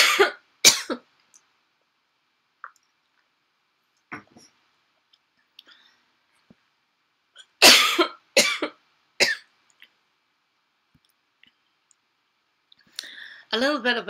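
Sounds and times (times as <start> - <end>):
woman coughing: 0.0 - 1.0, 7.6 - 9.4.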